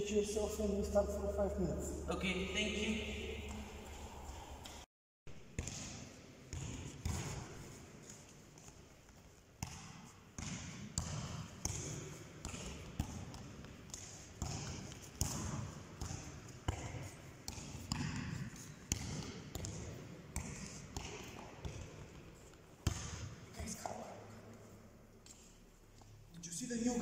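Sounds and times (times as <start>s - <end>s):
football kicked and bouncing: 5.3s - 24.0s.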